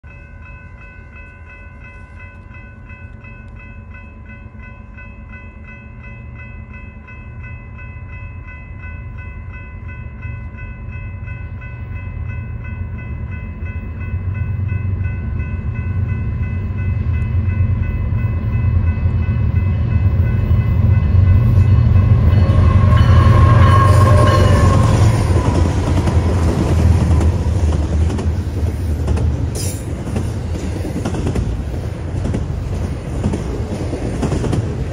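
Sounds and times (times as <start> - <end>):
crossing bells ringing: 0.0 - 27.8
freight train rumble: 0.1 - 34.9.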